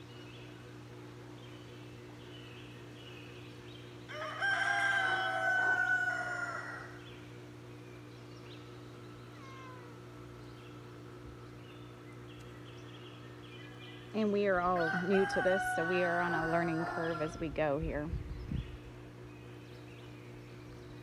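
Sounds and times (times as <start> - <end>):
rooster crowing: 4.1 - 7.0, 14.6 - 17.6.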